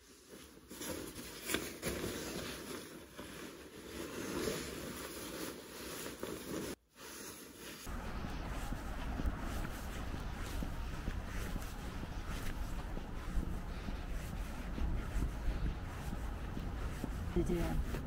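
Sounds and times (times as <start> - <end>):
padded coat rustling: 0.0 - 18.0
wind rumbling on microphone: 7.9 - 18.0.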